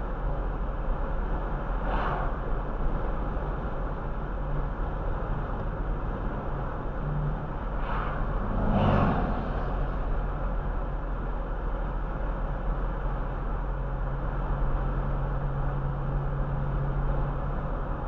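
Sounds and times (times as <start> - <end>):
car road and engine noise: 0.0 - 18.0
vehicles swishing past: 1.8 - 2.7, 6.0 - 10.8.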